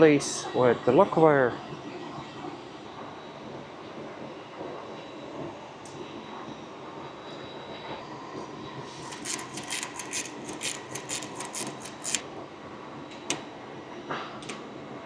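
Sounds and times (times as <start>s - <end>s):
steady hangar hum: 0.0s - 15.0s.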